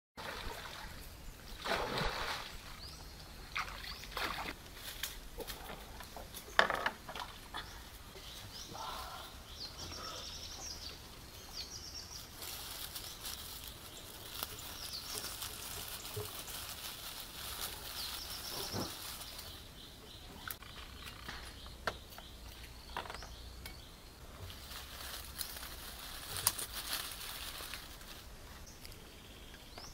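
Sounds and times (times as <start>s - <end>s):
birds chirping: 7.4s - 16.2s, 17.8s - 24.2s
dry grass rustling: 11.9s - 21.6s, 24.2s - 28.8s.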